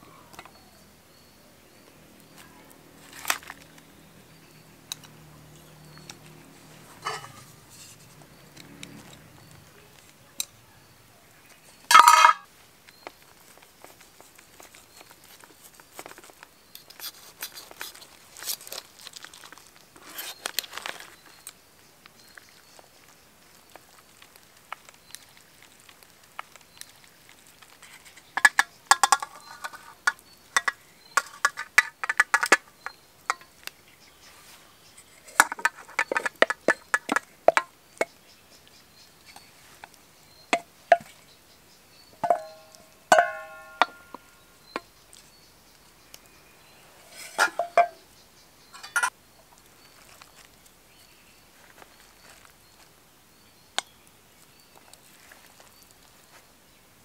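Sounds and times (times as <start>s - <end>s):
utensils clinking on enamel plate: 7.0s - 7.6s, 11.9s - 12.5s, 28.2s - 32.6s, 42.2s - 44.4s, 47.1s - 48.0s, 48.7s - 49.1s.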